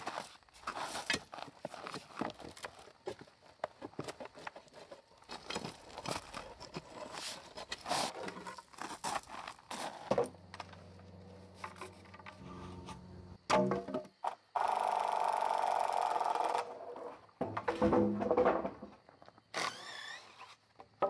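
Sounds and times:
hand tool scraping gravel and soil: 0.0 - 13.4
music with low notes: 10.6 - 13.4.

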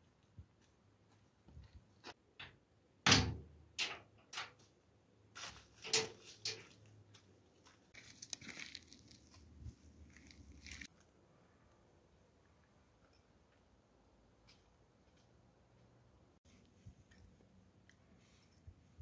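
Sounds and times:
sheet-metal door clunking and rattling: 3.0 - 4.6.

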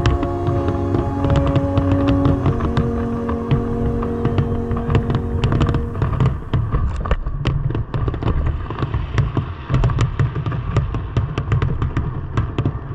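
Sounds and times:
fireworks bangs and crackles: 7.3 - 12.9.

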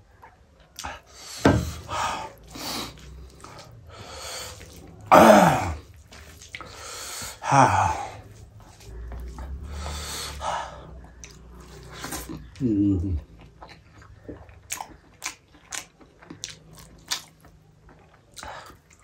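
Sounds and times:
chewing: 0.1 - 19.0
rice mixed by hand: 1.6 - 10.4
person breathing and sniffing: 6.6 - 11.0.

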